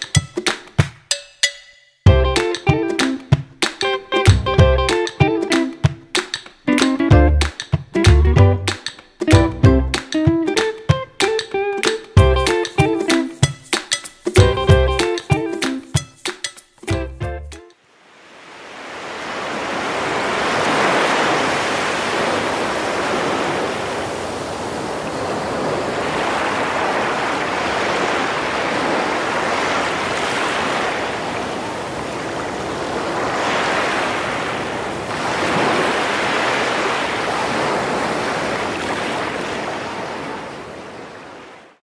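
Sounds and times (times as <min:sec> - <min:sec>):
ocean waves rolling in: 0:17.8 - 0:41.8.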